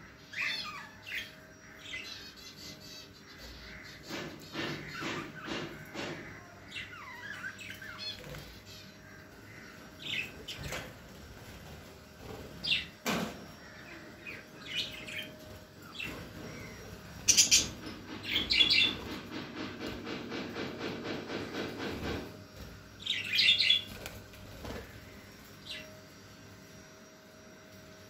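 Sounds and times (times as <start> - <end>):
budgies chirping: 13.6 - 19.1.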